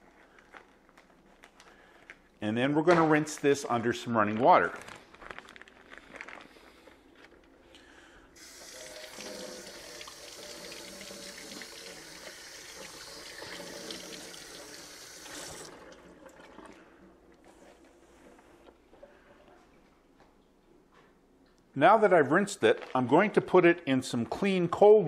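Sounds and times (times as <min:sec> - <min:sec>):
tap water running: 0:08.4 - 0:16.8.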